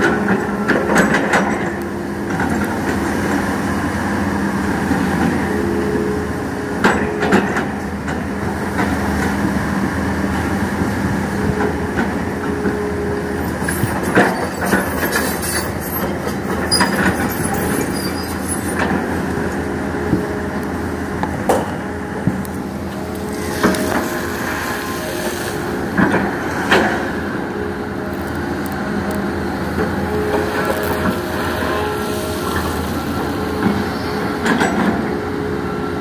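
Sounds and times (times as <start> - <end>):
excavator engine hum: 0.0 - 36.0
hydraulic whine: 10.4 - 36.0.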